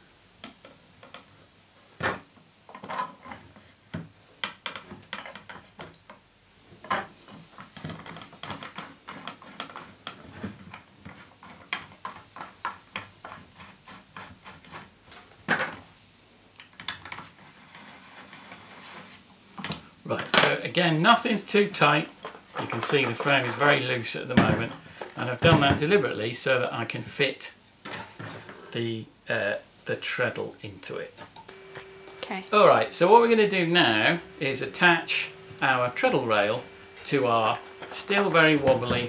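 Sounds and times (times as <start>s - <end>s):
clicks and knocks of metal and wood: 2.0s - 6.2s, 6.8s - 15.8s, 22.1s - 26.0s, 38.6s - 39.0s.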